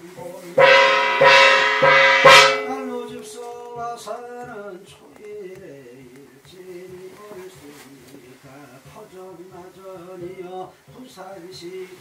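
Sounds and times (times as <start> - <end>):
loud ringing strike: 0.6 - 3.7.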